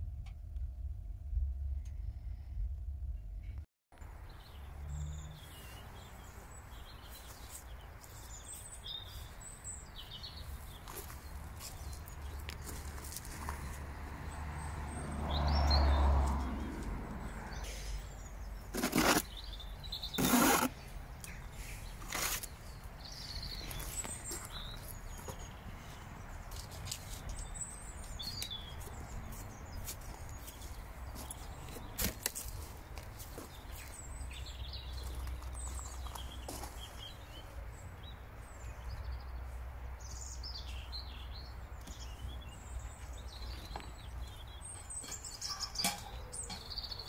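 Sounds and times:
steady low rumble: 0.0s - 3.7s
rustling: 18.7s - 19.3s, 21.9s - 22.6s
bird chirps: 40.1s - 47.0s.

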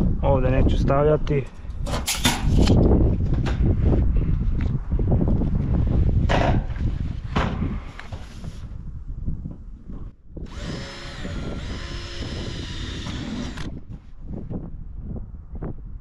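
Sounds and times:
cordless drill whining: 10.4s - 13.8s.

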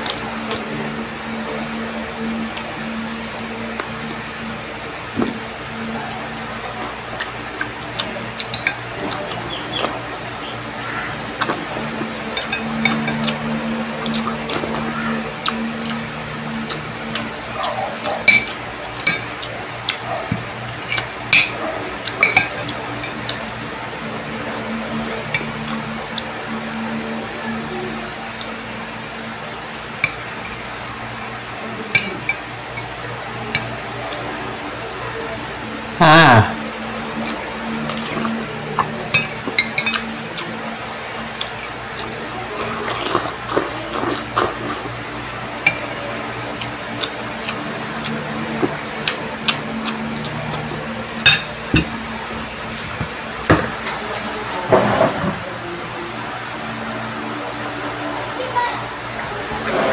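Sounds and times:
steady low hum: 0.0s - 59.9s
spoon clinking against ceramic bowl: 12.4s - 13.3s, 18.3s - 19.3s, 39.1s - 40.1s, 51.2s - 51.9s
spoon clinking on ceramic bowl: 18.3s - 19.3s, 51.2s - 51.9s.

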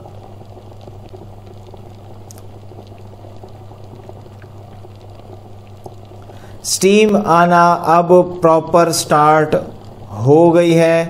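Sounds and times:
low steady hum: 0.0s - 11.0s
water boiling and bubbling: 0.0s - 11.0s.

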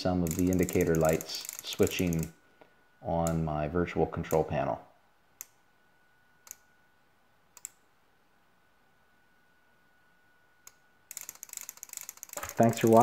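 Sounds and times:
relays clicking: 11.1s - 13.0s.

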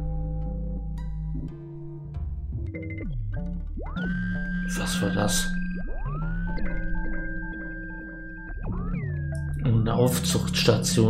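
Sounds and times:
electronic synthesizer music: 2.6s - 11.0s.

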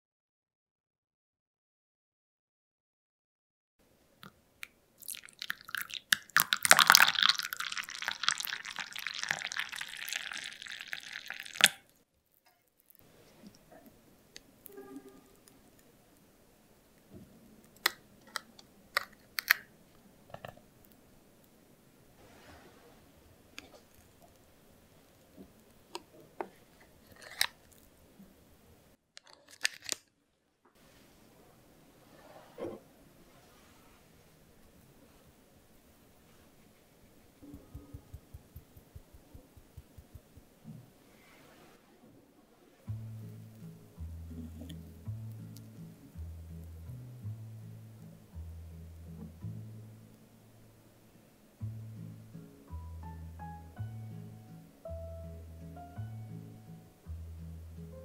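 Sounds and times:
coffee pouring into glass cup: 5.0s - 11.8s
spoon clicking and tapping cream: 37.4s - 40.4s.

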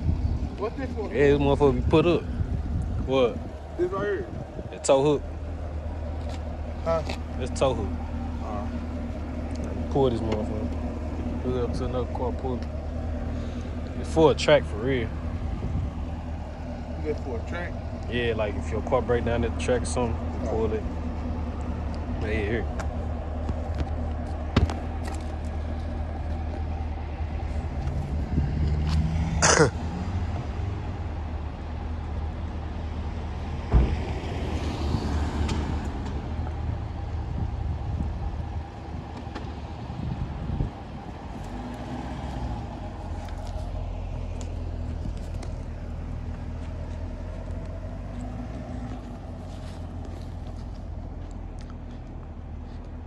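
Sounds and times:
car engine rumbling: 0.0s - 53.0s.

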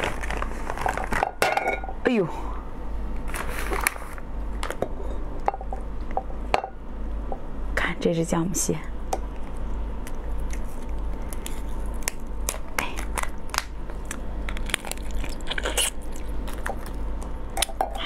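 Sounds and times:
crab shell cracking: 9.4s - 17.8s.

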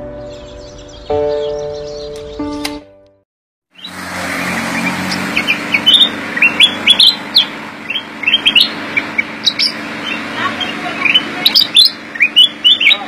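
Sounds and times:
bird calling in sharp rising notes: 3.7s - 13.0s
steady background hum: 5.8s - 13.0s.

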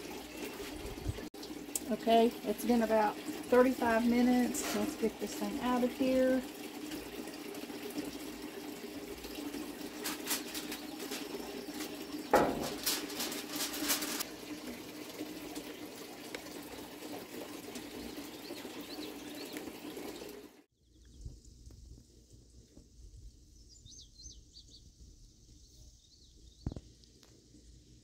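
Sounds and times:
birds chirping: 9.2s - 13.9s, 15.8s - 21.1s
baking dish clanking on grate: 12.3s - 14.2s.

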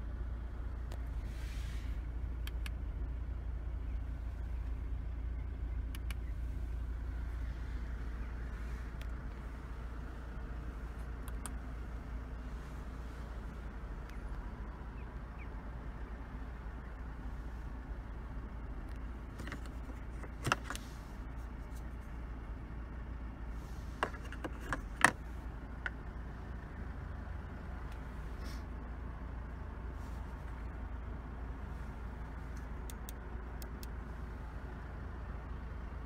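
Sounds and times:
car engine idling: 0.0s - 36.0s
sharp clicks: 2.4s - 2.8s, 5.8s - 6.3s, 11.1s - 11.6s.

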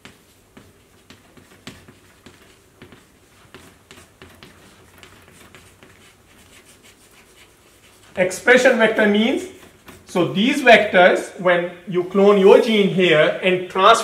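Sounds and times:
chalk tapping and scraping on blackboard: 0.0s - 10.2s.

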